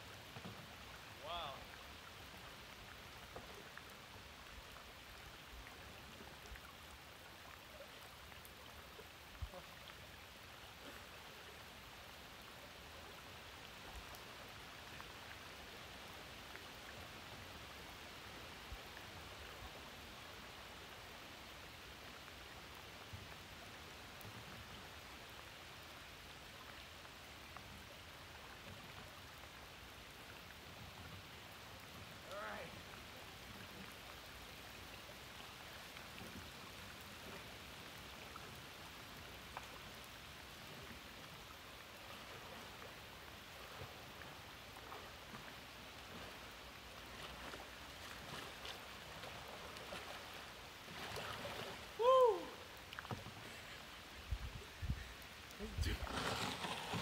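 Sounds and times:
river water running over stones: 0:00.0 - 0:57.0
light ticks: 0:39.5 - 0:39.8.

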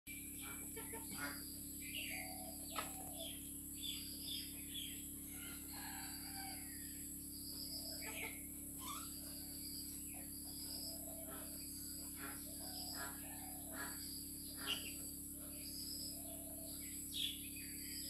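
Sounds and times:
high-pitched background drone: 0:00.1 - 0:18.0
chickens clucking: 0:00.3 - 0:01.5, 0:02.1 - 0:03.3, 0:07.6 - 0:15.6.

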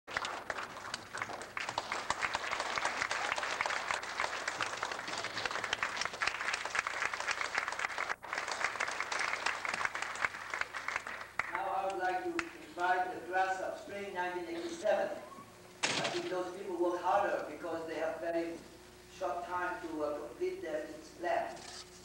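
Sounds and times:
audience applauding: 0:00.1 - 0:12.6.

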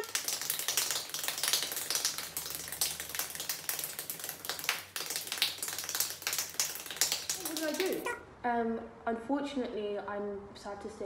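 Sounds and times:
rapid hand clapping: 0:00.0 - 0:08.2.

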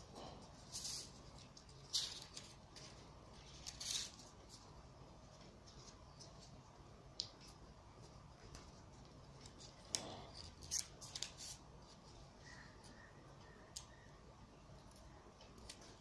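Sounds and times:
paper rustling: 0:00.4 - 0:04.7, 0:07.3 - 0:13.0
paper crackles: 0:00.6 - 0:04.7.

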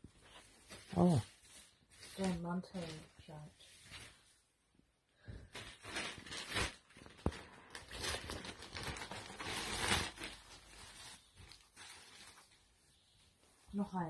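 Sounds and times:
plastic mailer bag crinkling: 0:05.5 - 0:12.7.

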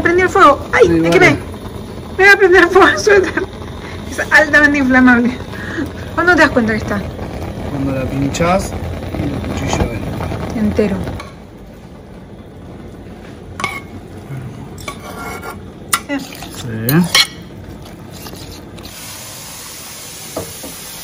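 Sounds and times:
spatula scraping a frying pan: 0:14.8 - 0:19.1
tap water running into pot: 0:17.9 - 0:21.0.

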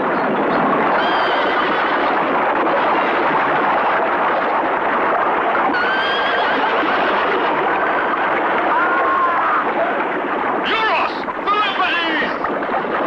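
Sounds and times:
water splashing: 0:00.0 - 0:13.0
horses whinnying: 0:01.0 - 0:02.1, 0:05.8 - 0:06.7
cavalry charge din: 0:10.6 - 0:12.4.

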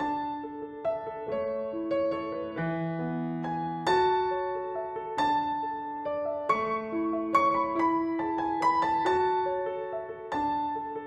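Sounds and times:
gentle piano melody: 0:00.0 - 0:11.0.

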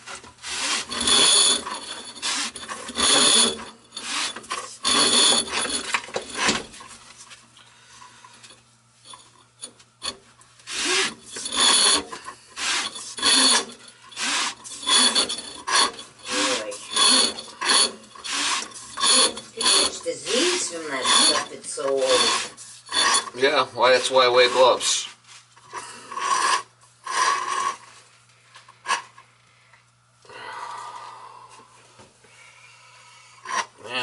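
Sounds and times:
drain snake scraping metal pipe: 0:00.0 - 0:06.8, 0:10.0 - 0:25.1, 0:25.8 - 0:27.9.

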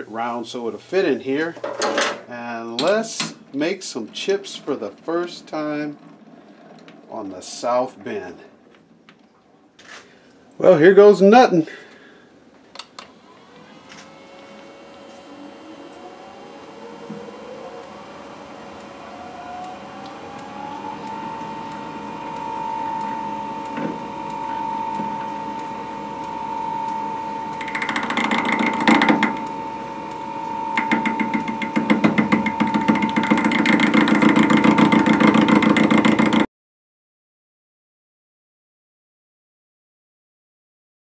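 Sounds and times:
lathe motor whine: 0:13.0 - 0:36.4.

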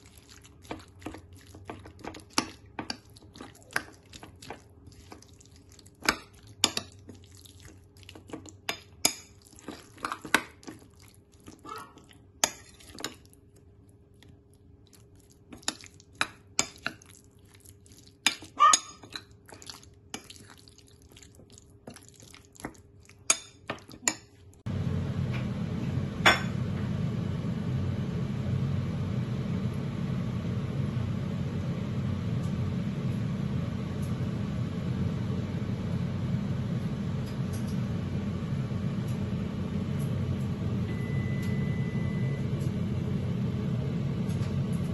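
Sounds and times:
steady low hum: 0:24.6 - 0:44.9.

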